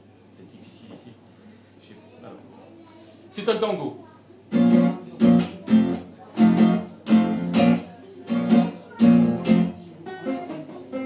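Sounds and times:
acoustic guitar strummed chords: 0:04.5 - 0:11.0.

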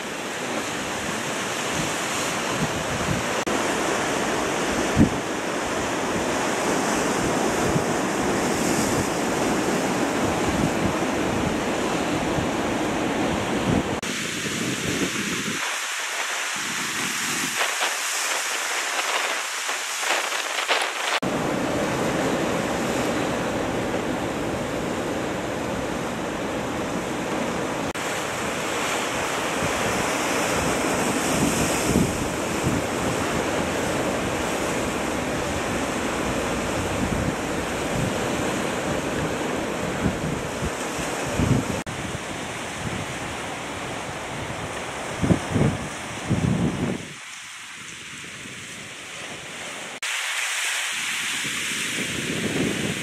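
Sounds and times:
sea surf on rocky shore: 0:00.0 - 0:53.0
wind buffeting microphone: 0:00.8 - 0:23.3, 0:27.9 - 0:47.3.

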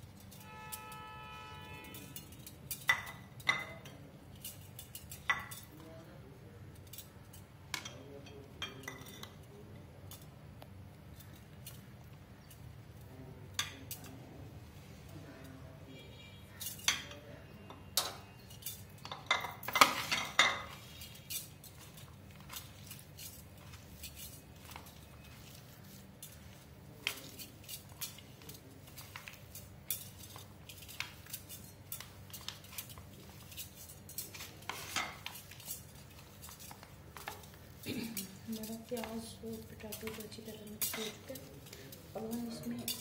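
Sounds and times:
bangles and fingers tapping a plate: 0:01.6 - 0:05.8.

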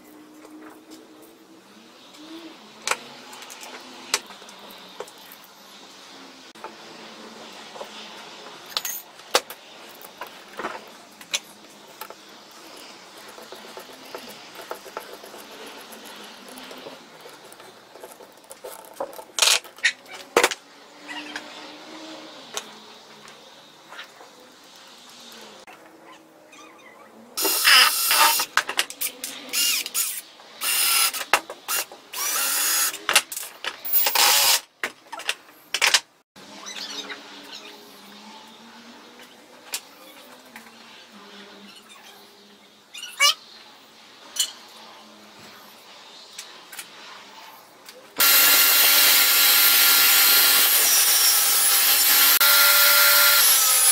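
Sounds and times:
cordless drill motor whirring: 0:27.4 - 0:28.5, 0:29.5 - 0:33.0, 0:34.0 - 0:34.6, 0:48.2 - 0:53.9.

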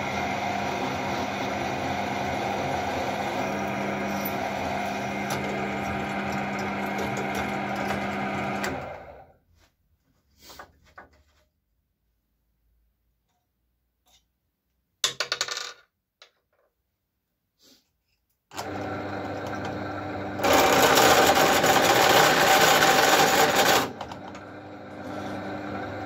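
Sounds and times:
drill press motor hum: 0:00.0 - 0:09.2, 0:18.5 - 0:26.0.

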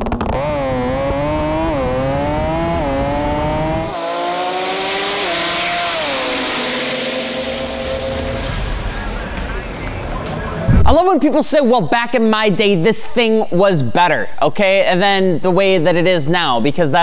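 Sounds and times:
race car accelerating: 0:00.1 - 0:10.7.

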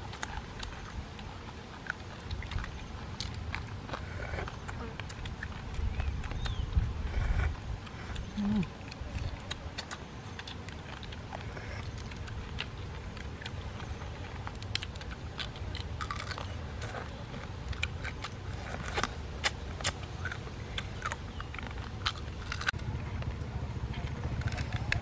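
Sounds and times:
chewing and sucking: 0:00.0 - 0:25.0
low steady rumble: 0:00.0 - 0:25.0
crab shells cracking: 0:08.2 - 0:23.4, 0:24.1 - 0:25.0.

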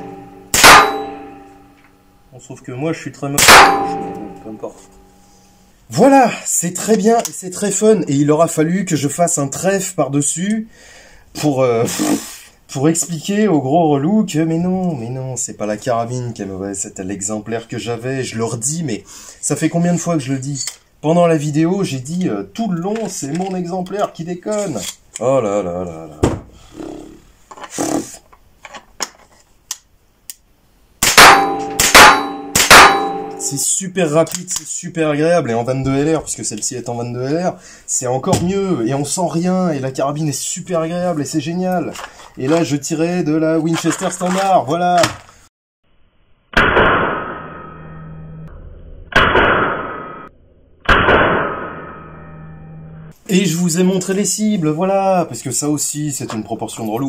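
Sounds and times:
loud rifle shots: 0:00.0 - 0:01.2, 0:03.4 - 0:04.2, 0:31.0 - 0:33.4, 0:46.6 - 0:47.4, 0:49.2 - 0:50.2, 0:50.9 - 0:51.8
metallic ringing: 0:00.0 - 0:02.3, 0:03.3 - 0:05.7, 0:31.2 - 0:33.6
rifle handling clicks and rubbing: 0:22.8 - 0:25.2, 0:28.6 - 0:30.4, 0:41.8 - 0:42.6, 0:43.6 - 0:45.4.

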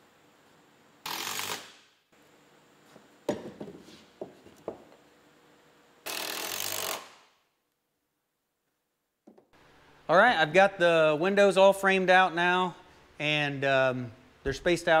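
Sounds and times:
cordless drill driving screws: 0:06.0 - 0:07.2.

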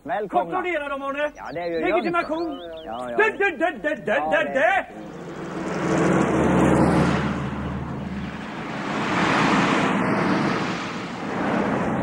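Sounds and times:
cars driving past: 0:04.3 - 0:12.0.

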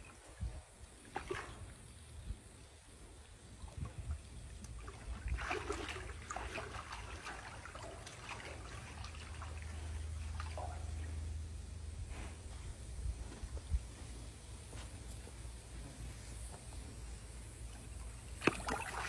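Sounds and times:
low hum: 0:00.0 - 0:18.9
water splashing in metal tank: 0:04.7 - 0:11.2, 0:18.4 - 0:19.0.

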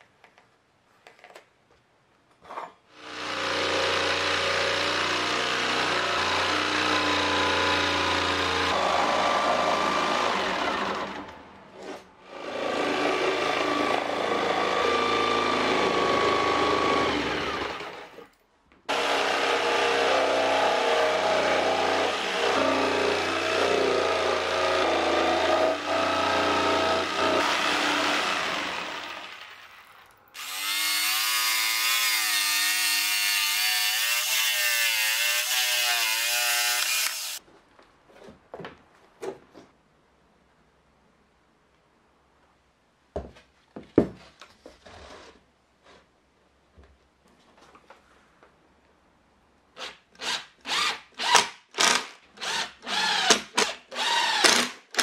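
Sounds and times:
electric jigsaw cutting: 0:03.0 - 0:11.4, 0:12.2 - 0:18.2, 0:18.9 - 0:29.8, 0:30.4 - 0:37.4, 0:50.2 - 0:55.0.

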